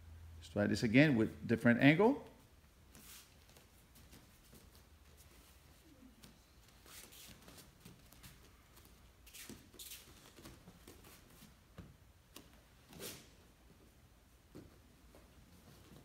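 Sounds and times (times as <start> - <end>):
bare feet rustling on mats: 2.4 - 16.0.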